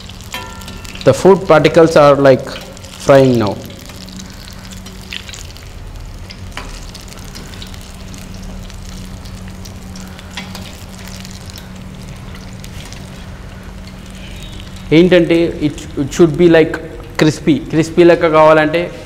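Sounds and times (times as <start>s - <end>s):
oil sizzling: 0.0s - 19.0s.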